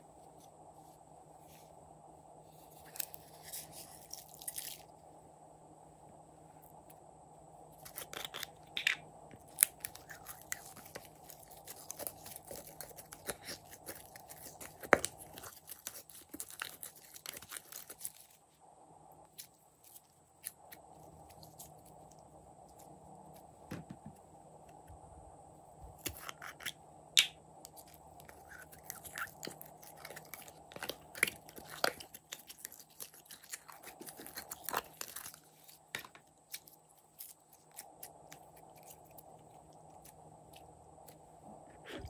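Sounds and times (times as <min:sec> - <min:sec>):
paste crackling and squelching: 0:09.5 - 0:18.3, 0:27.7 - 0:39.2.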